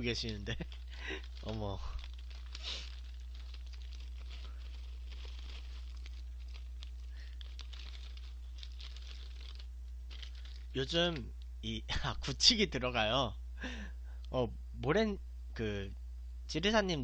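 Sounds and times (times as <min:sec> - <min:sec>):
plastic bag crinkling: 0:00.0 - 0:11.3
steady low hum: 0:00.0 - 0:17.0.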